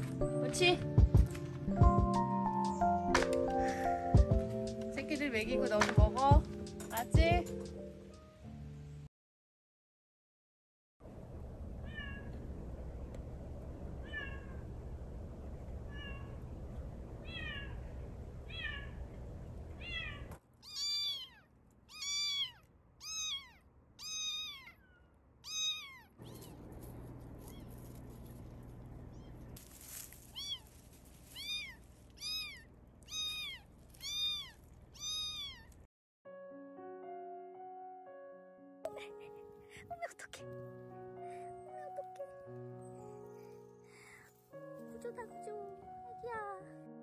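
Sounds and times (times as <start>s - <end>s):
low background rumble: 11.0s - 35.9s
kitten meowing: 17.3s - 17.8s, 19.8s - 26.6s, 27.4s - 27.8s, 30.3s - 35.8s.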